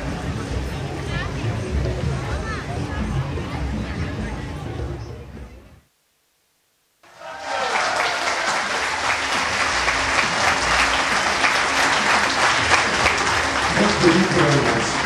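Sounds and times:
audience applause: 7.1s - 15.0s.

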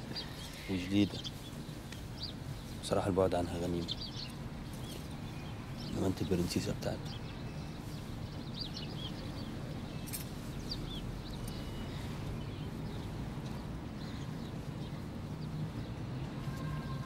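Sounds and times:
bird chirps: 0.0s - 17.0s.

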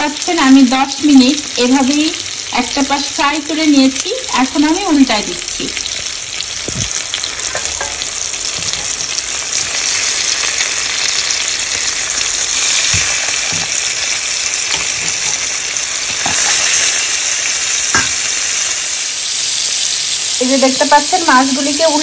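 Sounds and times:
fish sizzling in oil: 0.0s - 22.0s
spatula knocking on pan: 6.8s - 9.0s, 18.0s - 18.2s.

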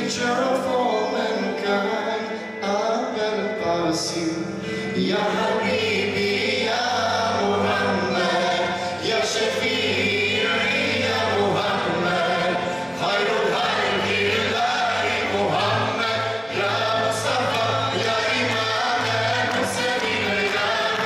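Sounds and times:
man singing: 0.0s - 21.0s
choir singing: 4.9s - 21.0s.

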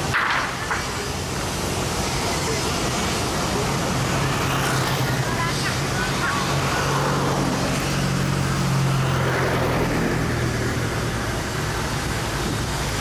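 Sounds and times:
road noise: 0.0s - 13.0s
car passing by: 3.8s - 13.0s.

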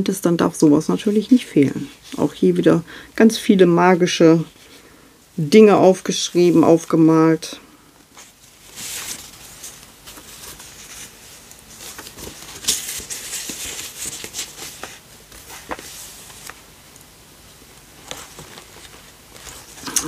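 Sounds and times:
paper rustling: 8.1s - 16.7s, 17.8s - 20.0s.

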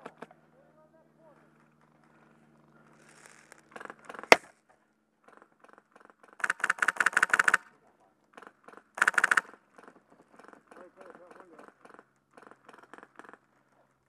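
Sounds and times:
airsoft gun firing bursts: 6.4s - 7.7s, 8.7s - 10.6s.

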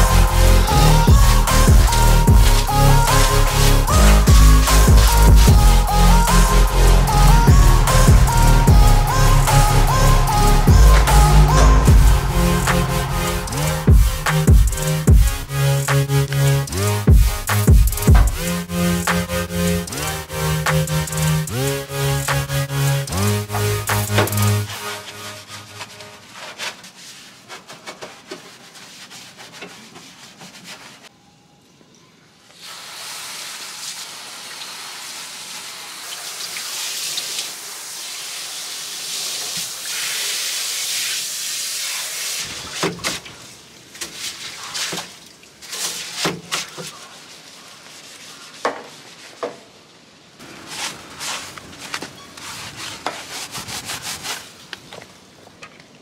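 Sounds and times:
hose nozzle spraying water: 0.0s - 26.8s, 32.6s - 47.5s
brush scrubbing metal floor: 0.0s - 31.1s, 38.0s - 49.7s, 50.5s - 54.6s.

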